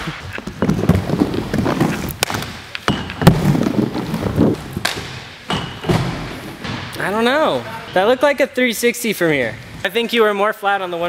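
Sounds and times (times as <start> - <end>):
skate wheels rolling on wood: 0.0 - 6.8
skate clacks and thumps: 0.0 - 7.0.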